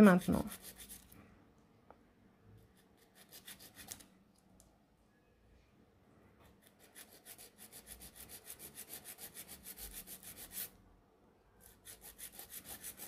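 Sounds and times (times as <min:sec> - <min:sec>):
nail file rasping: 0:00.1 - 0:01.1, 0:02.7 - 0:04.1, 0:06.6 - 0:10.7, 0:11.8 - 0:13.0.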